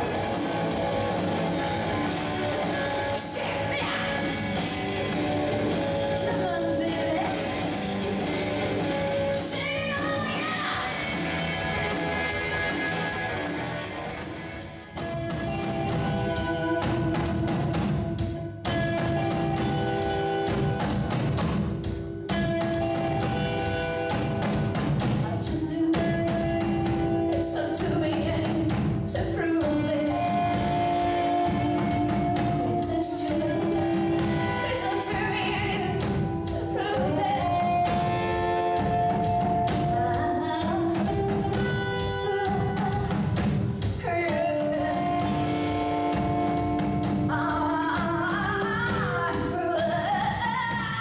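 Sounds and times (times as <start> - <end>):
bass guitar: 0.0 - 51.0
drum kit: 0.0 - 51.0
electric guitar: 0.0 - 51.0
woman singing: 2.4 - 7.8, 9.1 - 11.7, 25.2 - 30.6, 32.0 - 37.9, 39.3 - 45.6, 47.2 - 51.0.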